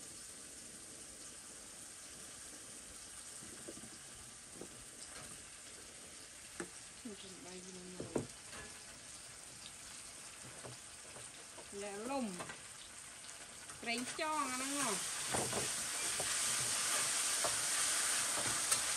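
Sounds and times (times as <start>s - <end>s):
food sizzling in a wok: 0.0s - 18.9s
metal spatula scraping wok: 14.0s - 18.9s.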